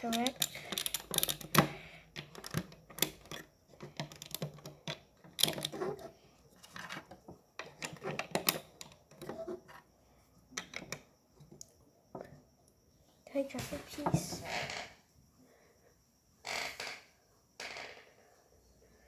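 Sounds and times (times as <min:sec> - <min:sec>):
plastic bricks clicking on table: 0:00.0 - 0:09.8, 0:10.5 - 0:12.3.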